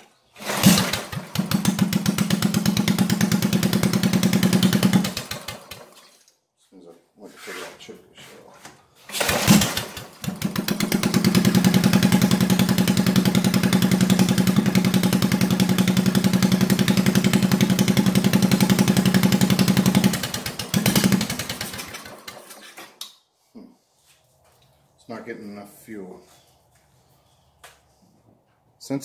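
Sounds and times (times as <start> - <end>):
small engine idling: 0.4 - 6.0, 9.1 - 22.6.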